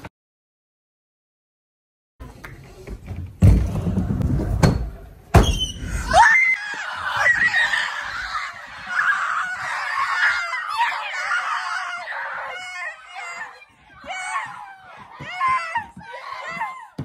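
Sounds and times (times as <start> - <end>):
children screaming and shouting: 5.6 - 17.0.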